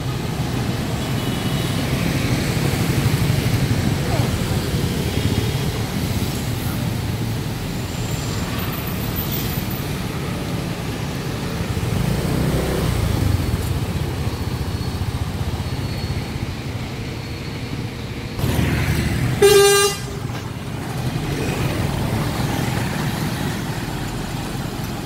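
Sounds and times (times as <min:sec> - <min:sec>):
road noise: 0:00.0 - 0:25.0
scooter engine rumble: 0:09.8 - 0:25.0.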